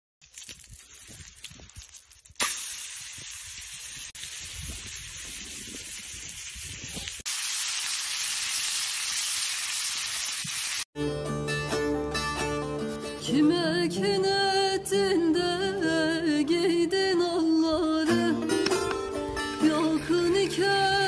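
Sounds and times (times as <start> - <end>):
embers crackling: 0.2 - 10.3
steak sizzling in a pan: 2.4 - 10.8.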